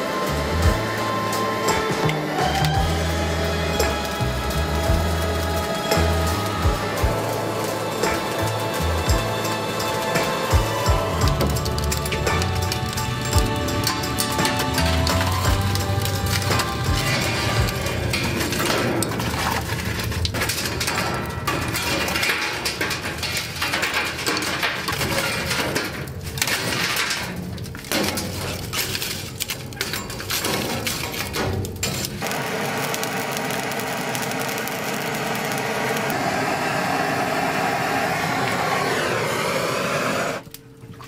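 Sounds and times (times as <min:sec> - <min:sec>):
butane torch hissing: 0:00.0 - 0:18.6, 0:32.2 - 0:40.6
charcoal clinking on grill grate: 0:00.4 - 0:36.0.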